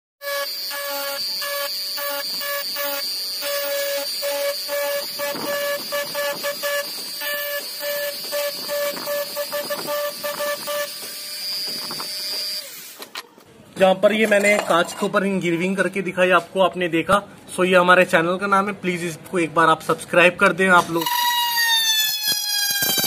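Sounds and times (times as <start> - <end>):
rotary tool engraving glass: 0.2 - 13.2, 21.0 - 23.0.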